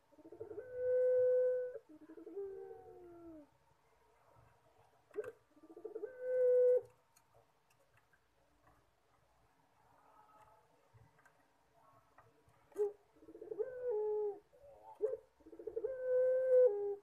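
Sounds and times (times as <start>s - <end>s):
dove cooing: 0.1s - 3.5s, 5.1s - 6.9s, 12.7s - 17.0s.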